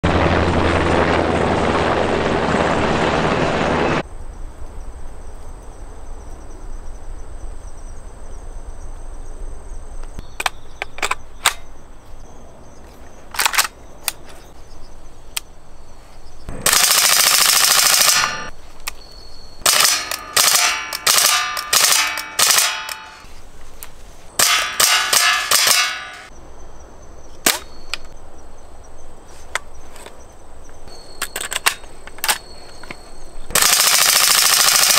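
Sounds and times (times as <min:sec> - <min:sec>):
automatic rifle bursts: 0:16.5 - 0:18.5, 0:19.6 - 0:23.2, 0:24.4 - 0:26.3, 0:33.5 - 0:34.9
rifle single shots: 0:24.4 - 0:26.3.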